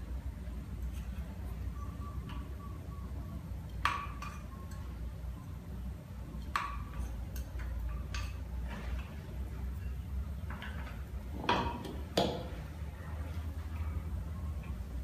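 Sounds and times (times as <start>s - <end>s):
utensil clinking on a dish: 3.6s - 5.0s, 6.4s - 12.6s.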